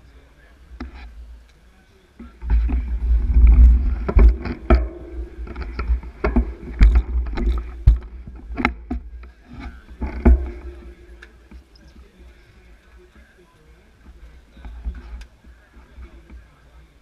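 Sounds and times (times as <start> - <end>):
bicycle clicks and knocks: 2.4 - 11.7
wind buffeting microphone: 2.4 - 12.8.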